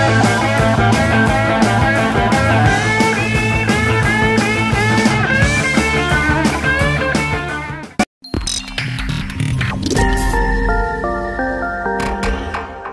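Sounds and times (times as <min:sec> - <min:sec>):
drum beat: 0:00.0 - 0:07.5
rock music: 0:00.0 - 0:08.0, 0:09.8 - 0:12.9.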